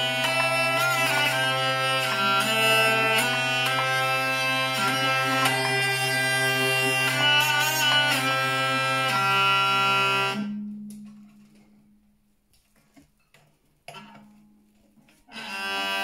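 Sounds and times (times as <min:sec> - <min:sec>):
hurdy-gurdy melody: 0:00.0 - 0:10.6, 0:15.2 - 0:16.0
hurdy-gurdy drone: 0:00.0 - 0:10.7, 0:15.3 - 0:16.0.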